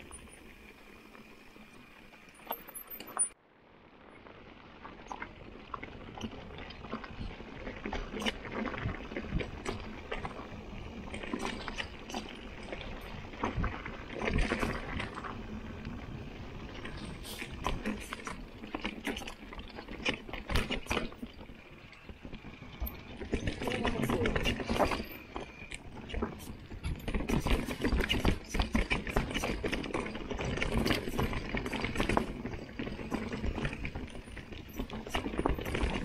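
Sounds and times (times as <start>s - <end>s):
bike tyres on gravel: 0.0s - 36.0s
bike clattering over bumps: 16.7s - 36.0s.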